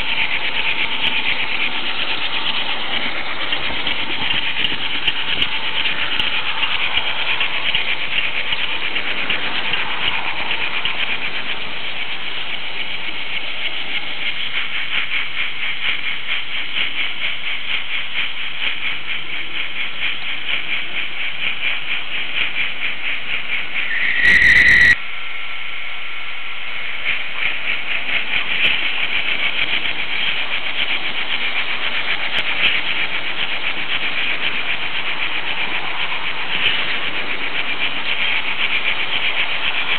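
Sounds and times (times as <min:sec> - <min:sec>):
model train wheels rattling: 0:00.0 - 0:25.0, 0:26.6 - 0:39.9
brief loud squeal: 0:23.8 - 0:25.0.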